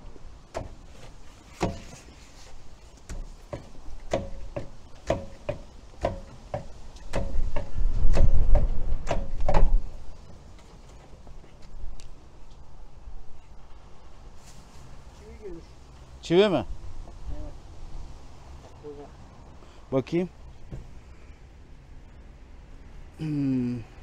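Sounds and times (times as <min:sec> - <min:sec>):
metallic knocks on wheel: 0:03.1 - 0:10.0.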